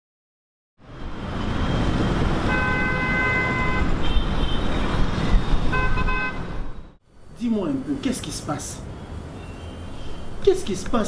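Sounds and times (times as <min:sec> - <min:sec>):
road traffic rumbling: 0:00.8 - 0:11.0
car horns honking: 0:02.4 - 0:04.9, 0:05.6 - 0:06.8.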